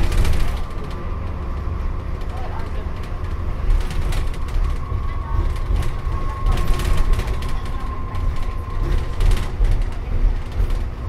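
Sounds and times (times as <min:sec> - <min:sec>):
body panels rattling and clicking: 0:00.0 - 0:11.0
bus engine and road rumble: 0:00.0 - 0:11.0.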